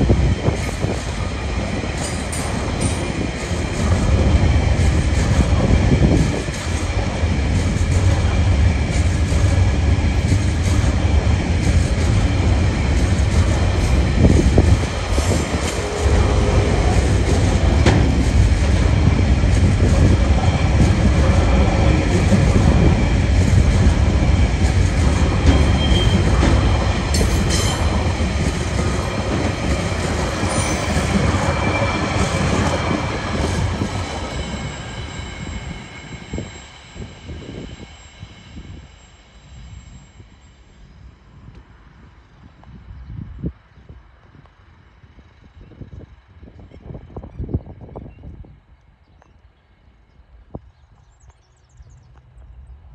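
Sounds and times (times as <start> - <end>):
train wheels rumbling: 0.0 - 48.5
wheel squeal: 25.4 - 26.4, 30.4 - 32.9.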